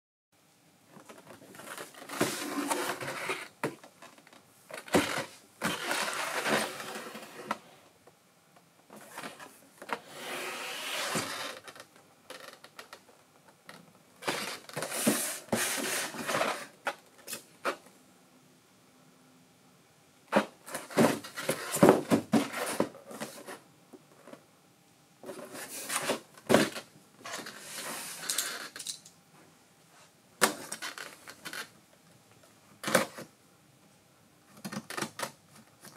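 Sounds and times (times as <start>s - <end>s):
cardboard box rubbing and scraping: 1.8s - 3.5s, 10.0s - 11.5s, 14.4s - 16.7s.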